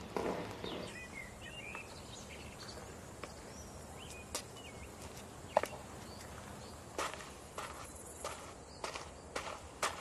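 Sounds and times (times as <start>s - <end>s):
bird chirps: 0.0s - 6.8s
faint outdoor ambience: 0.0s - 10.0s.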